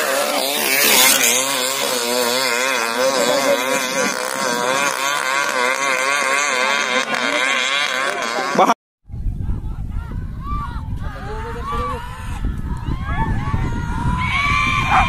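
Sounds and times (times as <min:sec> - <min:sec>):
motorcycle engines wobbling pitch: 0:00.0 - 0:08.8, 0:13.7 - 0:15.0.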